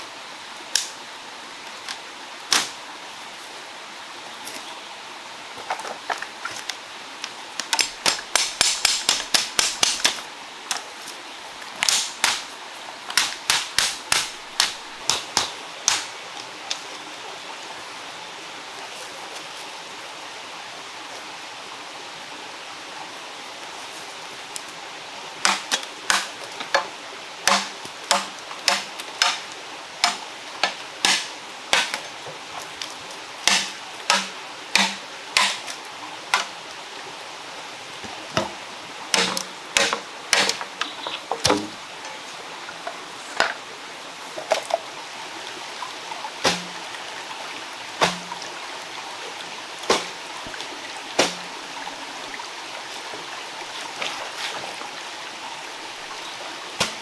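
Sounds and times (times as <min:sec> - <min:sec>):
knife chopping bamboo: 0:07.7 - 0:10.2, 0:11.8 - 0:12.4, 0:13.1 - 0:16.1, 0:25.4 - 0:26.3, 0:27.5 - 0:29.4, 0:30.0 - 0:32.0, 0:33.5 - 0:35.6, 0:39.2 - 0:40.6, 0:46.4 - 0:46.7, 0:48.0 - 0:48.3.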